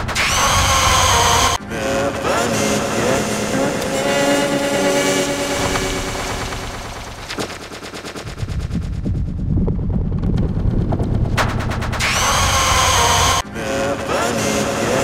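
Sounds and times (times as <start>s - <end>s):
low rumbling rattle: 4.6s - 12.5s.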